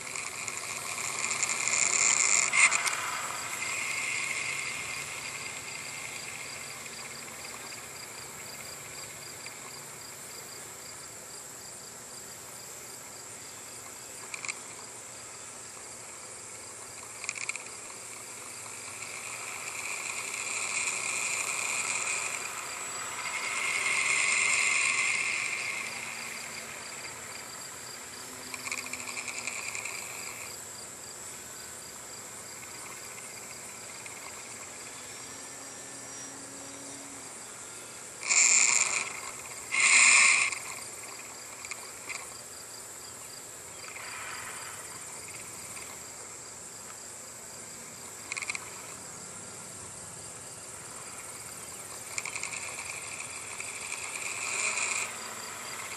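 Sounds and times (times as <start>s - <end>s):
crickets and insects chirring: 0.0s - 55.9s
high steady whine: 0.0s - 55.9s.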